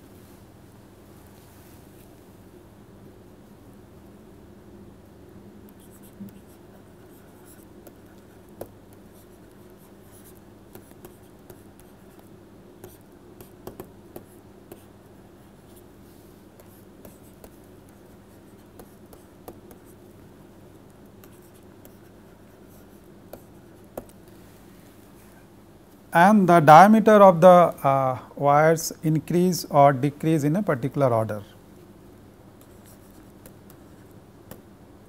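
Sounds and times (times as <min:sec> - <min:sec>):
steady low hum: 0:00.0 - 0:35.0
stylus tapping on tablet screen: 0:12.8 - 0:14.9, 0:18.8 - 0:19.8, 0:23.3 - 0:24.2, 0:34.5 - 0:34.7.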